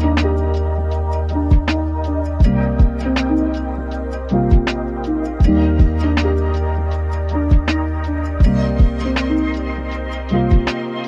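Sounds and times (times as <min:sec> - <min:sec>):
instrumental background music: 0:00.0 - 0:11.0
deep kick drum thumps: 0:01.5 - 0:01.8, 0:02.4 - 0:03.1, 0:04.5 - 0:04.7, 0:05.4 - 0:06.1, 0:07.5 - 0:07.8, 0:08.4 - 0:09.1, 0:10.5 - 0:10.7.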